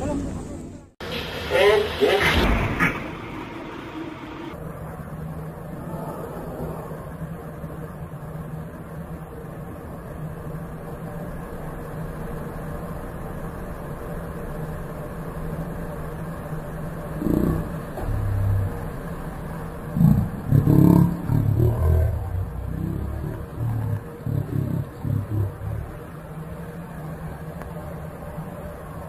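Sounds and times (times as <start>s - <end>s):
low machinery hum: 0.0s - 29.0s
low rumbling bursts: 14.7s - 29.0s.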